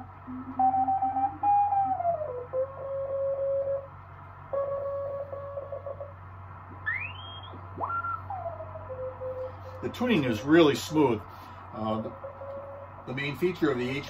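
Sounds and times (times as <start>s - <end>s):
low hum: 0.0s - 14.0s
radio whistling tones sweeping: 6.8s - 10.2s.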